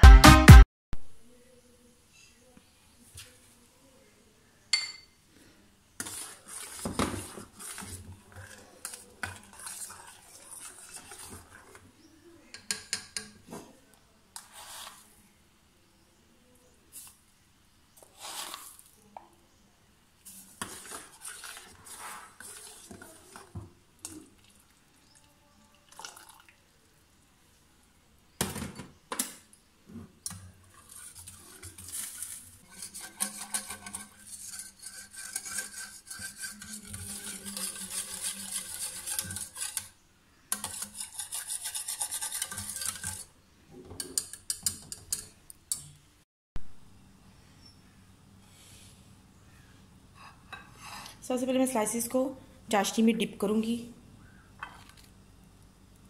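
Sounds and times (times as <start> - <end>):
clinks and taps: 4.8 - 5.1, 12.6 - 13.4
whisk scraping metal pan: 6.0 - 11.8, 14.4 - 15.0, 20.3 - 24.2, 30.3 - 43.3, 44.0 - 45.8.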